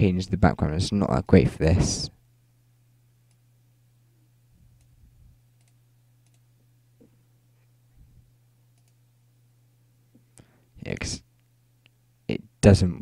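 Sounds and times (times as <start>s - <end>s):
steady low hum: 0.0s - 13.0s
computer mouse clicks: 5.6s - 6.4s, 8.7s - 9.0s.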